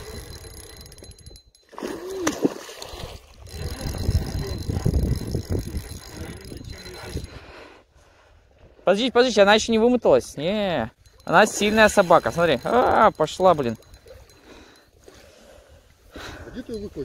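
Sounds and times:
fishing reel clicking: 0:00.0 - 0:01.6, 0:03.3 - 0:07.4, 0:11.0 - 0:14.9.

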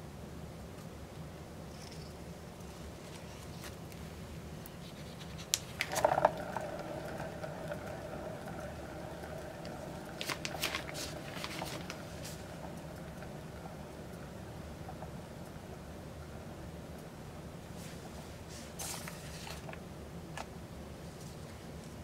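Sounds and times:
turntable whine: 0:05.6 - 0:20.2.

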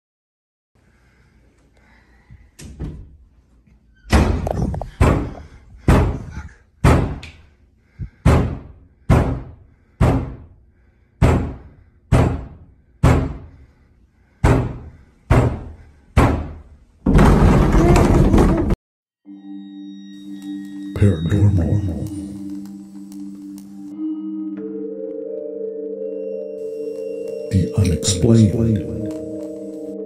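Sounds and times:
wooden door banging: 0:04.0 - 0:07.2, 0:08.2 - 0:10.5, 0:11.2 - 0:13.5, 0:14.4 - 0:18.8.

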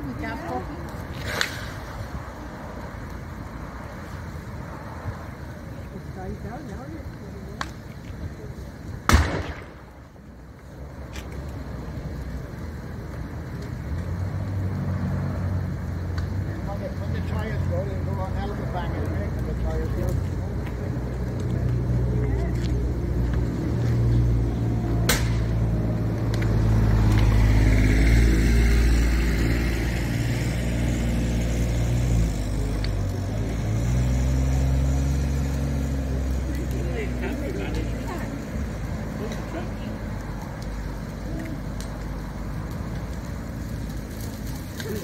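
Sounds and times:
fire burning fiercely: 0:00.0 - 0:45.0
vehicle engine hum: 0:00.0 - 0:45.0
sharp crack: 0:00.8 - 0:02.2, 0:07.4 - 0:08.2, 0:08.9 - 0:11.6, 0:22.7 - 0:38.4, 0:40.3 - 0:45.0
faint pop: 0:25.0 - 0:25.5.

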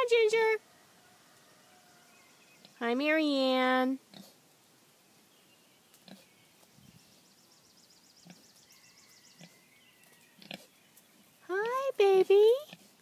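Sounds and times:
pig grunting softly: 0:04.1 - 0:04.4.

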